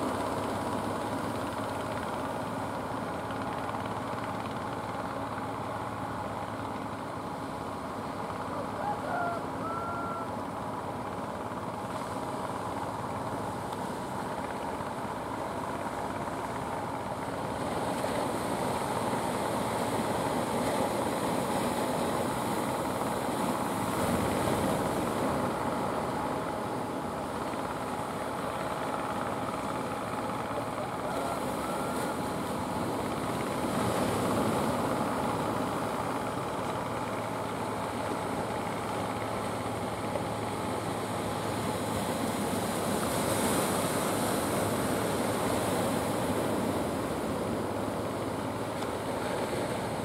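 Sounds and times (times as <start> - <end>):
boat engines running: 0.0 - 50.0
surf breaking on shore: 15.8 - 50.0.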